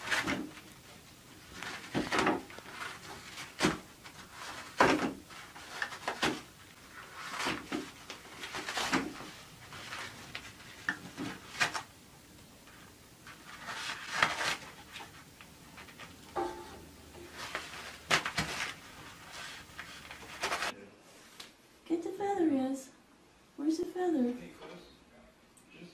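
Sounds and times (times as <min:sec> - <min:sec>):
paper rustling: 0:00.0 - 0:11.9, 0:12.6 - 0:16.2, 0:17.0 - 0:20.7.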